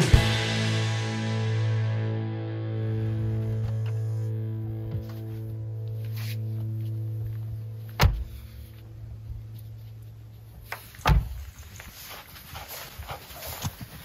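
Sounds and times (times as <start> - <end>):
footsteps in snow: 4.9 - 14.0
truck doors slamming shut: 8.0 - 8.4, 11.0 - 11.4.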